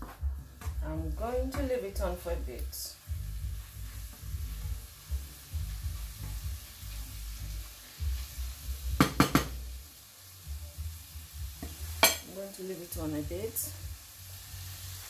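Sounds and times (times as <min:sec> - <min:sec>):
meat sizzling in a frying pan: 0:01.1 - 0:15.0
wooden spoon knocking on pan: 0:09.0 - 0:09.6, 0:11.6 - 0:12.3.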